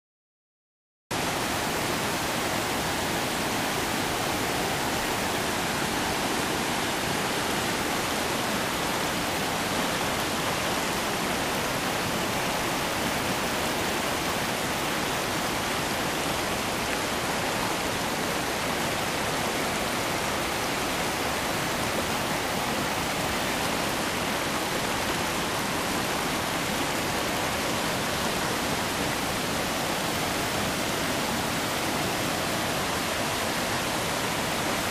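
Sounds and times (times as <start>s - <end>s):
stream rushing over rocks: 1.1s - 34.9s.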